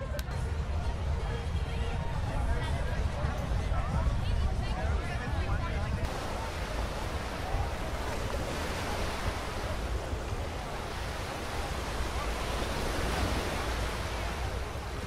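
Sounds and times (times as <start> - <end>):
wind buffeting microphone: 1.1 - 15.0
small waves washing on sand: 6.0 - 15.0.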